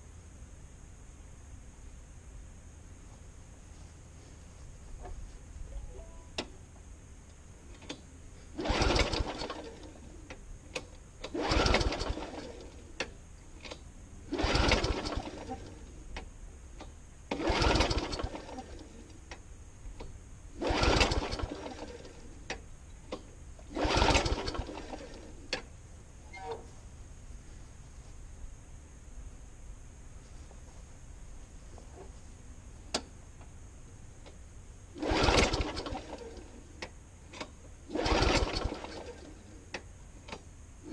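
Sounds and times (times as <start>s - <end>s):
lawnmower recoil starter pulls: 8.6s - 15.9s, 17.3s - 19.2s, 20.6s - 25.7s, 35.0s - 36.6s, 37.3s - 39.6s.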